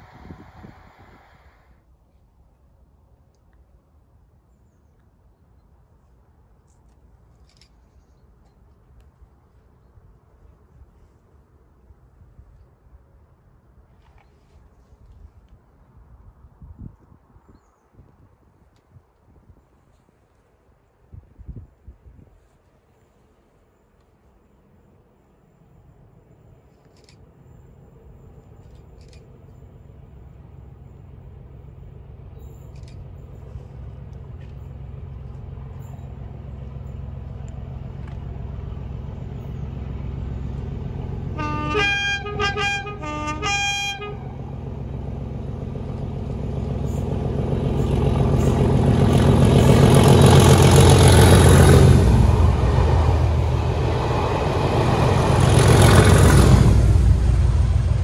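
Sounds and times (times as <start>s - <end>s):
diesel locomotive engine rumble: 0.0s - 4.4s, 21.2s - 58.0s
two-tone train horn blasts: 41.3s - 44.7s.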